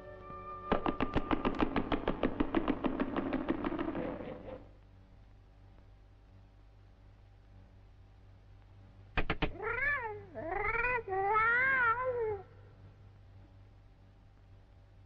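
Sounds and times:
sharp taps: 0:00.7 - 0:04.6, 0:09.2 - 0:09.6
cat meowing: 0:09.4 - 0:12.6.

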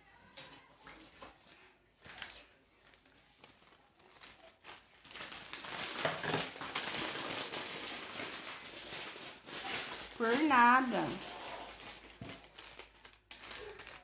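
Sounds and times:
plastic piping bag crinkling: 0:02.0 - 0:14.0.

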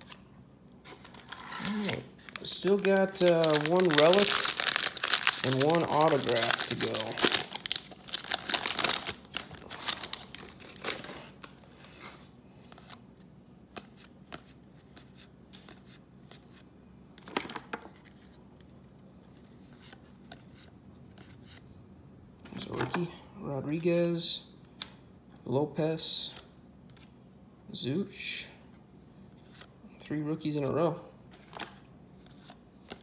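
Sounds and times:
foil pack tearing and crinkling: 0:01.0 - 0:11.1.

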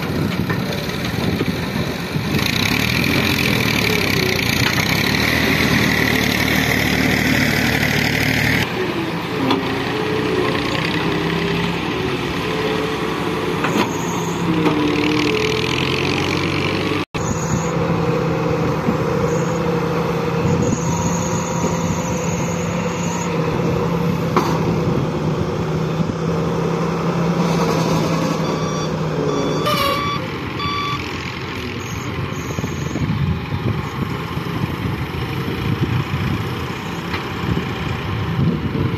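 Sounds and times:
excavator diesel engine under load: 0:00.0 - 0:38.9
short high beeps: 0:28.4 - 0:31.1.

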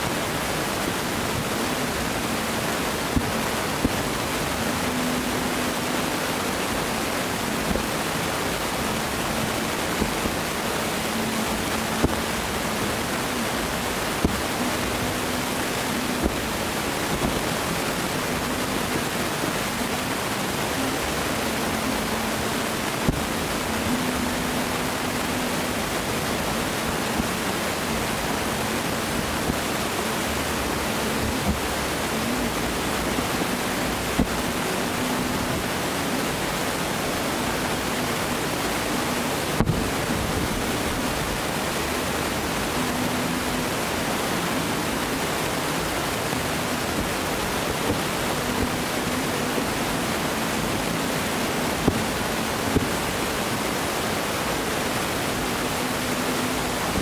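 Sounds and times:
steady rushing hiss: 0:00.0 - 0:57.0.

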